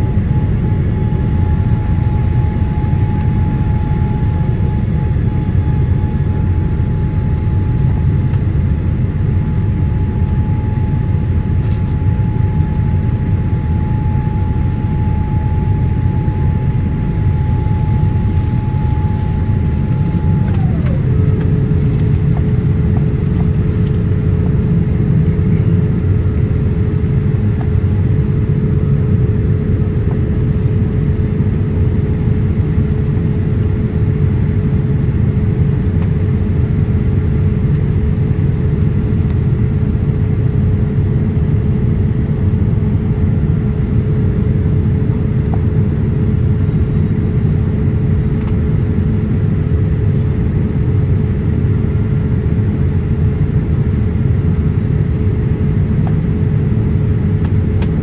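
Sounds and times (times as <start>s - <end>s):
airplane cabin engine rush: 0.0s - 58.0s
thin whine dropping in pitch: 9.4s - 22.2s.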